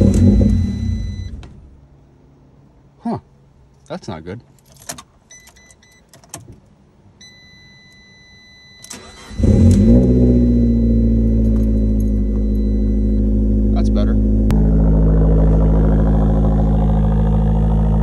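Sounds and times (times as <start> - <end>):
car engine starting and idling: 0.0 - 2.5, 4.5 - 18.0
dashboard chime beeping: 10.4 - 13.2.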